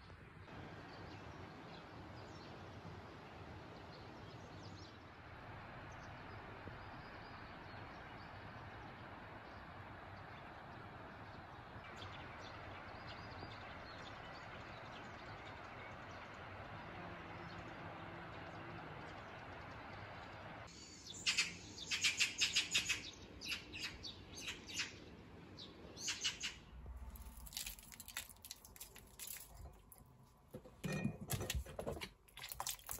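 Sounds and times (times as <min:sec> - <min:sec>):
bird chirps: 0:20.7 - 0:25.0, 0:25.6 - 0:26.7.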